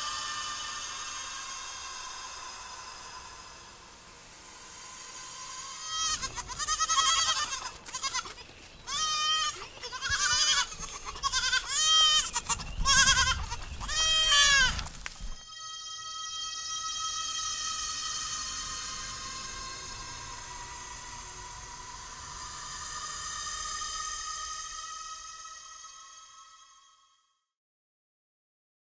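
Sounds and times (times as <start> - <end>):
goats bleating: 5.2 - 26.6.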